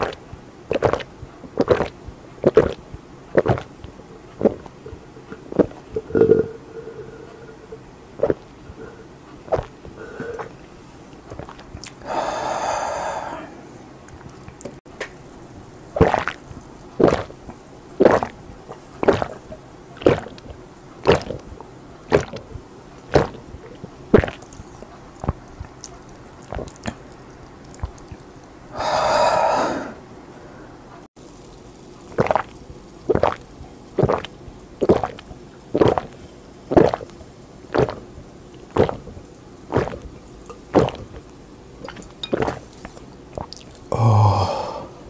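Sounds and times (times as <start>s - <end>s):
person swallowing soda: 0.0s - 13.4s, 16.0s - 22.5s, 23.1s - 30.0s, 32.1s - 45.0s
breathy exhale: 6.0s - 7.8s, 8.7s - 9.2s, 10.0s - 10.6s, 12.0s - 13.7s, 28.7s - 30.8s, 43.9s - 45.0s.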